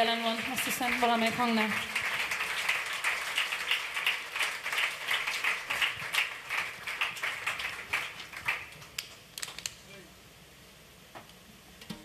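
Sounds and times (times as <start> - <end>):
hand clapping: 0.4 - 9.8.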